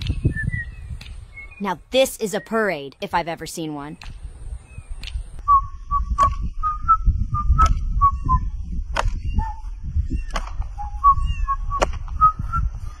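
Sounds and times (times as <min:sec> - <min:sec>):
man whistling a marching tune: 0:00.1 - 0:01.5, 0:05.4 - 0:08.6, 0:09.2 - 0:09.7, 0:10.8 - 0:12.9
sharp clicks: 0:03.9 - 0:04.2, 0:05.0 - 0:05.3
low rumble: 0:04.0 - 0:13.0.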